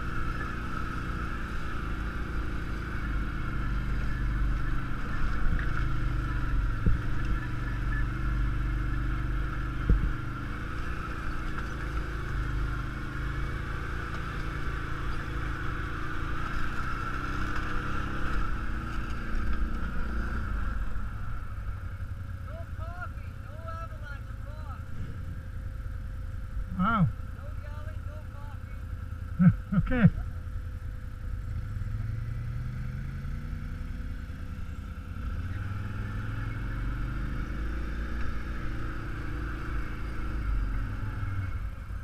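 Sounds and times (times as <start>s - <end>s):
atv engine running: 0.0s - 42.0s
knocks and clatter over rocks: 4.6s - 6.1s, 6.7s - 7.6s, 9.8s - 10.2s, 10.8s - 12.6s, 16.3s - 20.3s.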